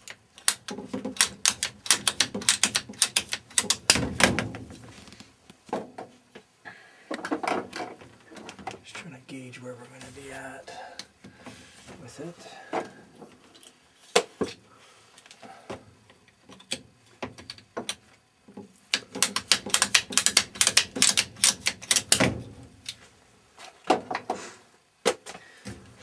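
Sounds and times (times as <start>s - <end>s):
rapid irregular clicking and tapping: 0.0s - 5.6s, 16.1s - 23.0s.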